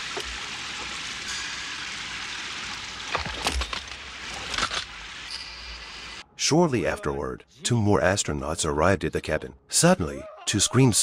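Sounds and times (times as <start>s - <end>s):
steady hissing: 0.0s - 6.2s.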